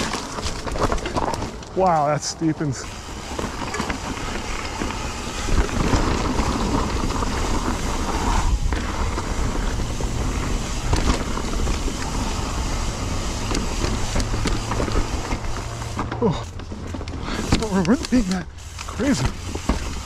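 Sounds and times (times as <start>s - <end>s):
bike rattling: 0.0s - 20.0s
bike tyres rumbling over rocks: 0.0s - 20.0s
wind buffeting microphone: 2.8s - 15.9s.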